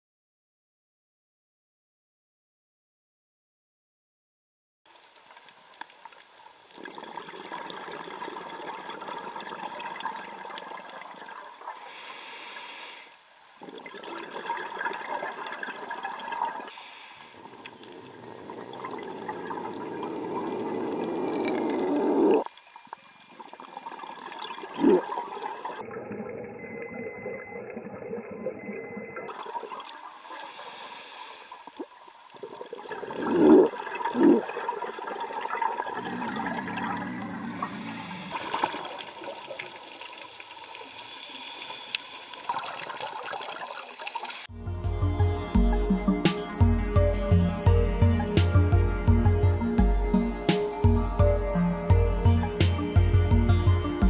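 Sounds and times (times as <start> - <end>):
gurgling exhaled bubbles: 6.8 - 11.7, 13.6 - 16.8, 17.4 - 22.5, 23.6 - 29.9, 32.4 - 39.8
diver breathing through regulator: 36.0 - 38.4.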